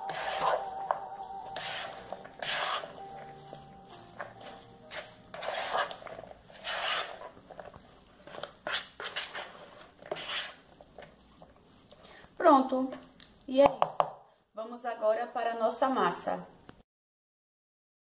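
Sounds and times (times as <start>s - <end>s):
spatula scraping plastic bowl: 0.0s - 13.1s.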